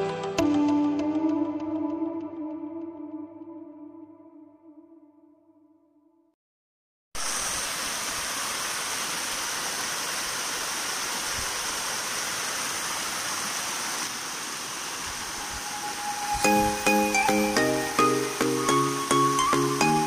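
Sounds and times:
keyboard music: 0.0s - 5.7s, 15.8s - 20.0s
waterfall rushing: 7.2s - 20.0s.

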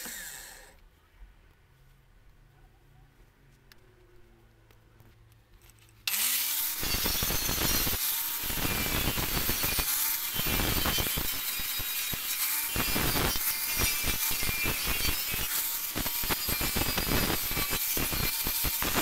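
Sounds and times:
angle grinder grinding metal: 0.0s - 0.7s, 6.1s - 19.0s.

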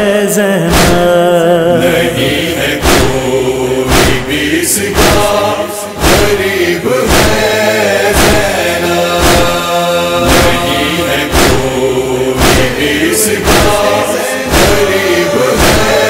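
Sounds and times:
chorus chanting a lament: 0.0s - 16.0s
heavy rhythmic thud: 0.6s - 16.0s.

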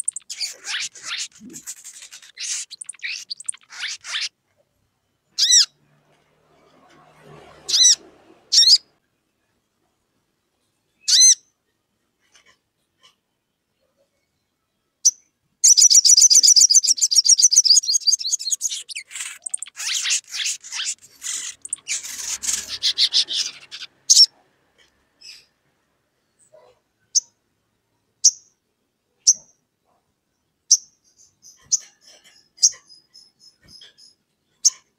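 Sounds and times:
bird trilling and chattering: 0.0s - 4.3s, 5.4s - 5.7s, 15.6s - 24.4s.

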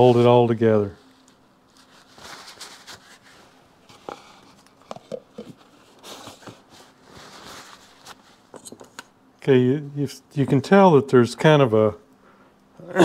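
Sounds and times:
soft rustling: 0.0s - 4.8s, 5.4s - 8.7s.

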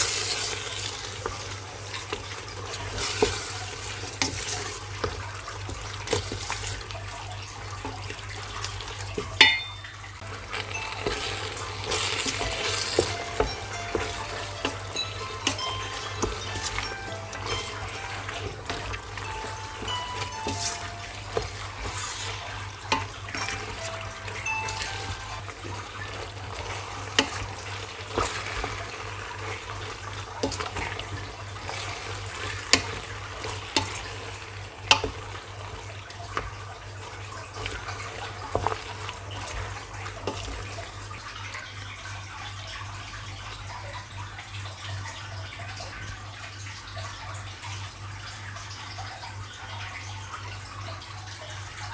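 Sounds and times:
faint music: 0.0s - 47.0s
water running from a tap: 0.0s - 51.9s
dishes and utensils clinking: 9.1s - 28.9s.

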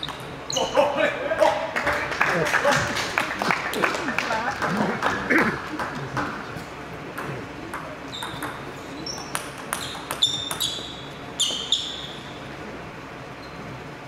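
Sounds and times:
table tennis ball bouncing: 0.0s - 0.3s, 7.2s - 11.9s.

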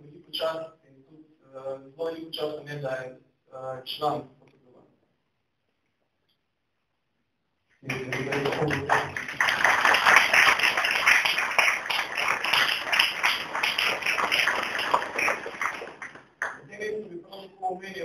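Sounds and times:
audience applauding: 7.8s - 16.7s.

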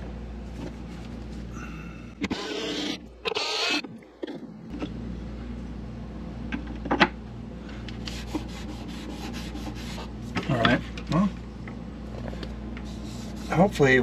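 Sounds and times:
low hum: 0.0s - 13.5s
hand rubbing on wood panel: 12.8s - 13.8s.

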